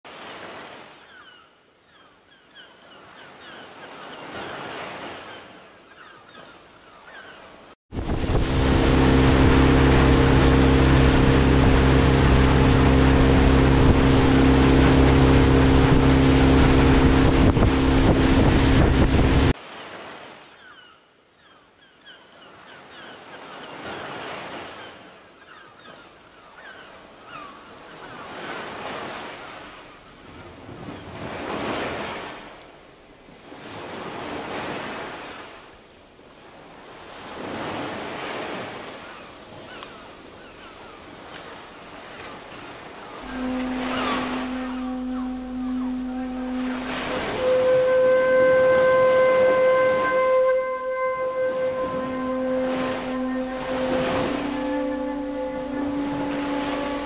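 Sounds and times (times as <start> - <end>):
rushing water: 2.9 - 20.7, 27.0 - 57.0
loud wind: 7.9 - 19.6
motorboat engine hum: 7.9 - 19.6, 40.8 - 57.0.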